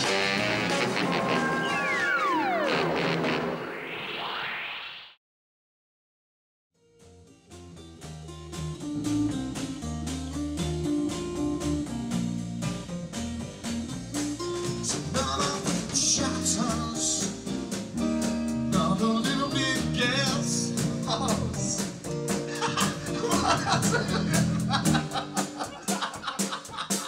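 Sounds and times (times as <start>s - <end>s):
band music with drums: 0.0s - 3.2s, 7.5s - 27.0s
person singing: 14.9s - 17.4s, 18.7s - 25.1s.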